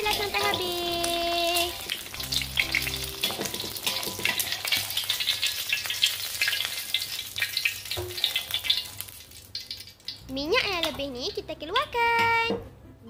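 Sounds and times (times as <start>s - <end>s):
egg sizzling in oil: 0.0s - 10.3s
metal spatula scraping wok: 0.1s - 7.1s.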